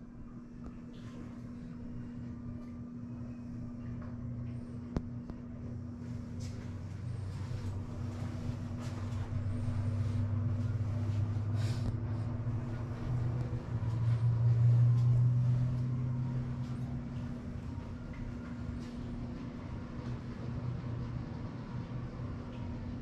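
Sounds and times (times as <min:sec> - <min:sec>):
air conditioning humming: 0:00.0 - 0:23.0
faint rustles and clicks: 0:03.9 - 0:20.2.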